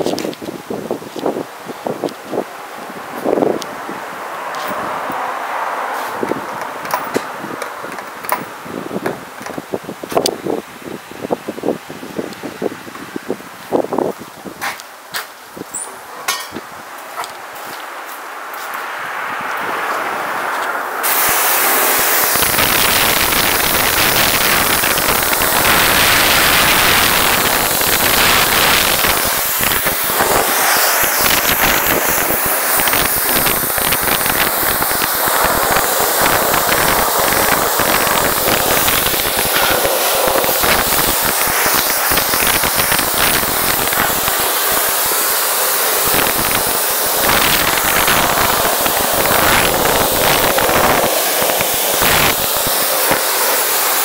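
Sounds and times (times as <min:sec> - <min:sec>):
pressure washer spraying water: 0:19.8 - 0:54.0.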